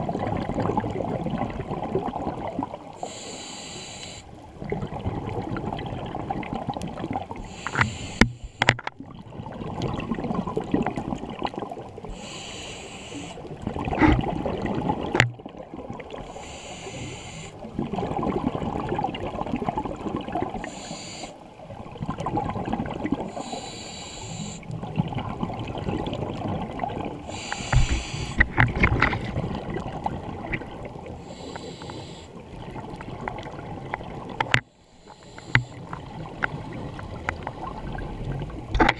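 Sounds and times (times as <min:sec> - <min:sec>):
exhaled air bubbling: 0:00.0 - 0:34.7
regulator inhalation hiss: 0:03.0 - 0:04.3, 0:07.4 - 0:08.6, 0:12.1 - 0:13.4, 0:16.3 - 0:17.6, 0:20.6 - 0:21.4, 0:23.3 - 0:24.6, 0:27.3 - 0:28.4, 0:31.2 - 0:32.3, 0:34.8 - 0:35.8.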